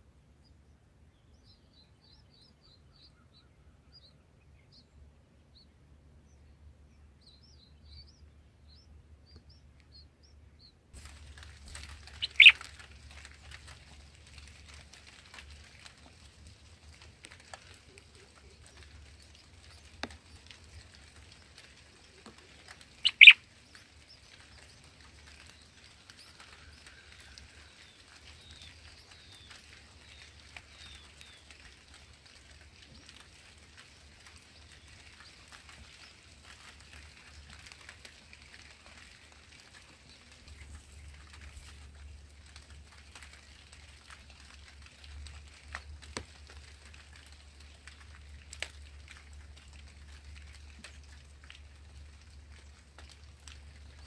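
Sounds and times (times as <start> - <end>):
bird chirping: 1.1 - 10.8, 11.7 - 12.7, 21.3 - 31.5.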